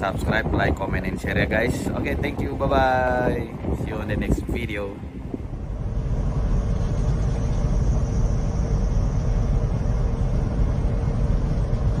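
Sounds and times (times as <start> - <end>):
faint steady hum: 0.0 - 12.0
car engine and tyres rumbling: 2.0 - 12.0.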